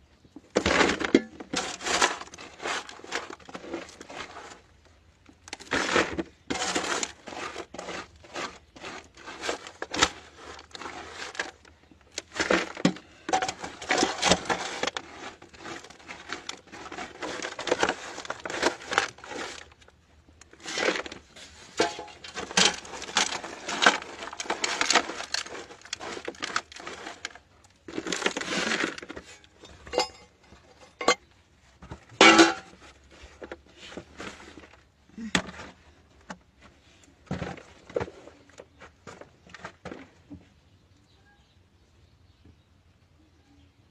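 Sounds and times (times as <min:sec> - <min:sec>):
dirt and stones scraped by hand: 0:00.5 - 0:31.2.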